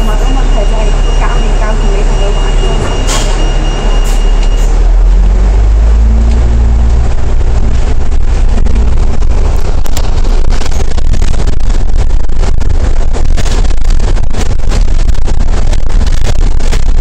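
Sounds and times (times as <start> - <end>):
bus diesel engine rumbling: 0.0 - 17.0.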